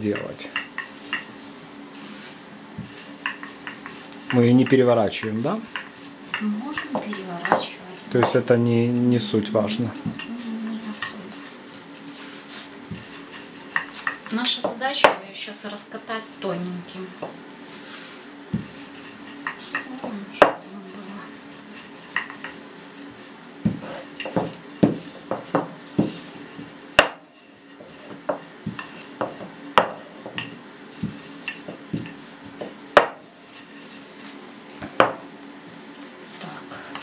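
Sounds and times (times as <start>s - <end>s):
rolling pin knocking on stone: 2.8s - 8.4s, 19.4s - 20.6s, 23.6s - 27.2s, 28.0s - 33.2s, 34.8s - 35.3s.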